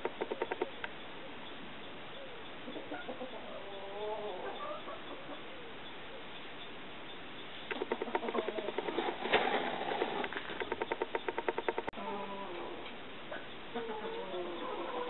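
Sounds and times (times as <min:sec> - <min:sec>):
turkey clucking: 0:02.6 - 0:05.7, 0:07.7 - 0:09.1, 0:10.0 - 0:15.0.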